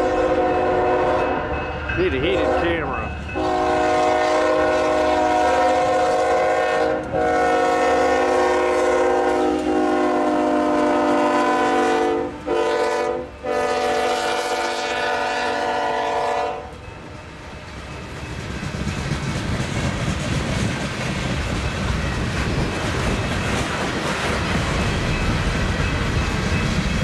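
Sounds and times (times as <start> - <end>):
locomotive air horn: 0.0 - 1.6, 2.2 - 16.8
train rolling rumble: 0.0 - 27.0.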